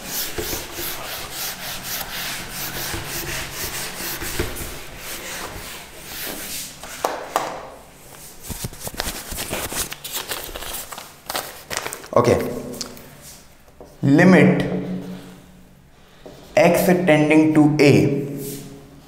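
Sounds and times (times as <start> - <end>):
eraser scrubbing whiteboard: 0.0 - 7.4.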